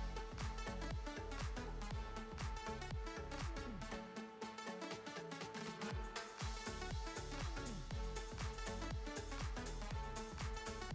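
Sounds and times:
kick drum beat: 0:00.0 - 0:03.6, 0:05.9 - 0:10.8.

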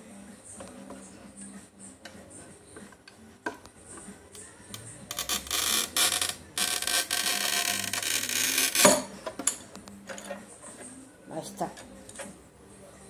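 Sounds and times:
cutter wheel scratching glass: 0:05.1 - 0:08.9.

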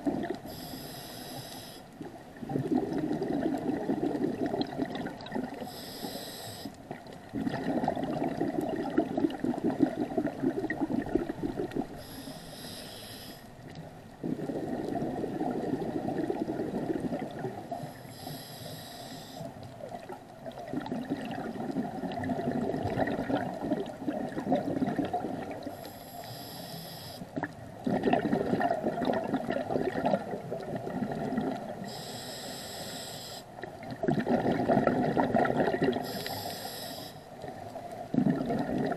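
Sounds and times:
regulator hissing inhale: 0:00.4 - 0:01.9, 0:05.6 - 0:06.8, 0:11.9 - 0:13.5, 0:17.7 - 0:19.6, 0:25.7 - 0:27.3, 0:31.8 - 0:33.5, 0:36.0 - 0:37.3
exhaust bubbles bubbling: 0:02.4 - 0:05.6, 0:07.3 - 0:12.0, 0:14.2 - 0:17.7, 0:19.9 - 0:25.7, 0:27.8 - 0:31.8, 0:33.9 - 0:36.0, 0:38.0 - 0:38.9.

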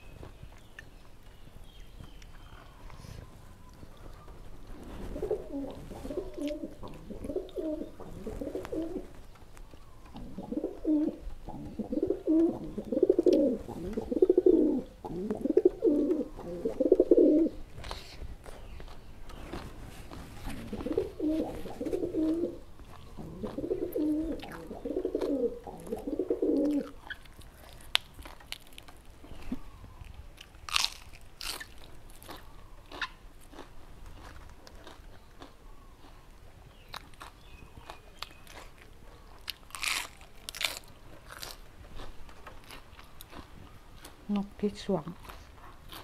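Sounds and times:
chewing raw vegetables: 0:00.2 - 0:46.0
dove cooing: 0:04.8 - 0:09.1, 0:10.1 - 0:17.6, 0:20.5 - 0:27.0.

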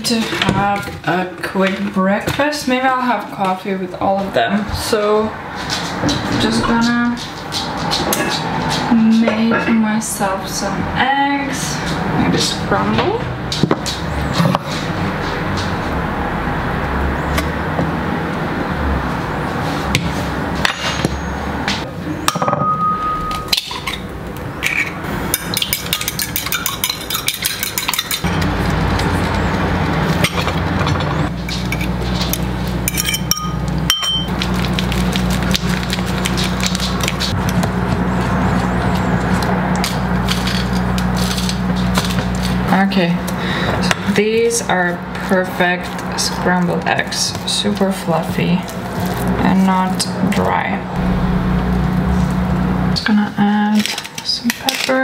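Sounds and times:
cutlery clinking on dishes: 0:24.6 - 0:28.3, 0:32.9 - 0:34.3.

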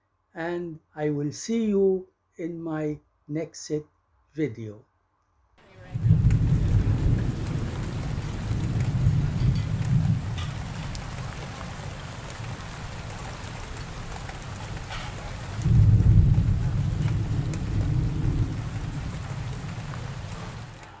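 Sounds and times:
steady rain: 0:05.6 - 0:21.0
deep thunder rumble: 0:05.8 - 0:20.9.

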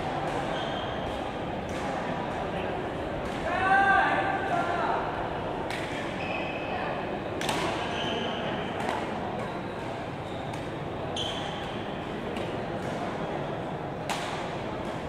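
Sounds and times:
murmur of hall: 0:00.0 - 0:15.0
shoe squeaks on court floor: 0:00.4 - 0:01.1, 0:06.1 - 0:06.7, 0:07.8 - 0:08.6, 0:09.5 - 0:12.0
racket hitting shuttlecock: 0:07.4 - 0:07.8, 0:14.0 - 0:15.0.

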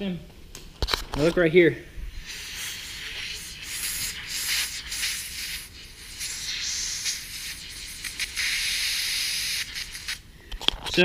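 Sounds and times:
pressurized air hissing from leak: 0:02.1 - 0:10.3.

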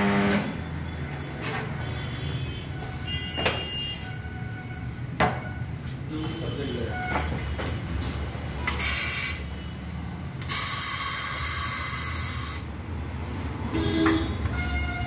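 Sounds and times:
compressed air hissing: 0:08.7 - 0:09.4, 0:10.4 - 0:12.7.

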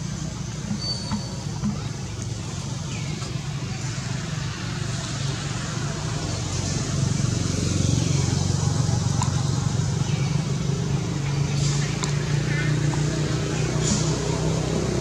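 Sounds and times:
faint high chirps: 0:00.7 - 0:01.8.

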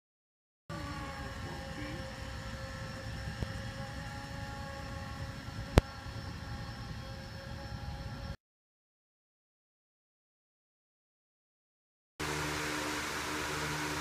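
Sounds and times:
floor scrubber motor whine: 0:00.7 - 0:08.4, 0:12.2 - 0:14.0
low rumble of scrub deck: 0:00.7 - 0:08.4.

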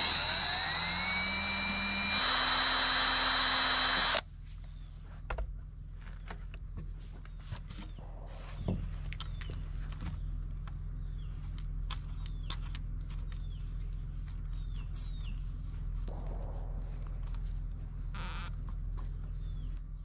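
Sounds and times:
steady low hum: 0:00.0 - 0:20.0
birds chirping: 0:06.1 - 0:20.0.

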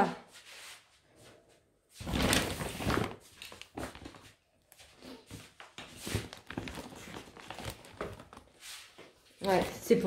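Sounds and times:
shopping bag rustling: 0:02.0 - 0:09.8.

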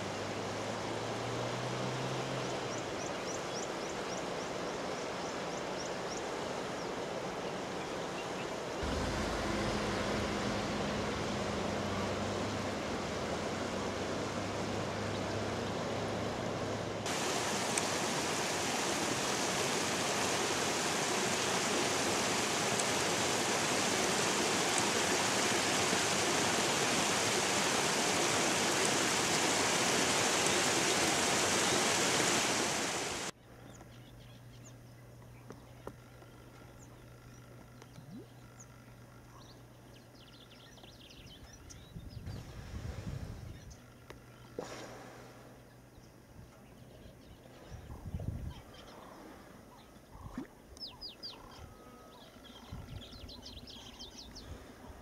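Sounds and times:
river water rushing: 0:00.0 - 0:33.4.

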